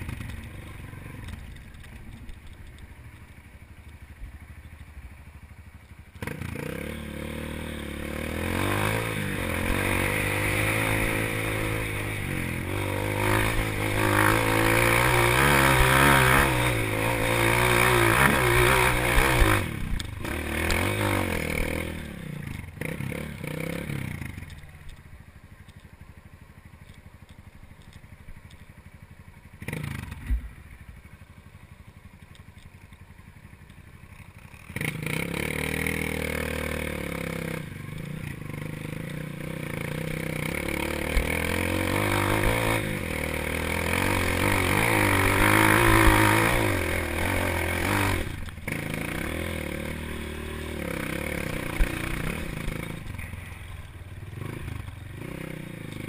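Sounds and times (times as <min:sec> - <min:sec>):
dirt bike engine revving: 0:06.2 - 0:24.6, 0:29.6 - 0:31.0, 0:34.5 - 0:56.0.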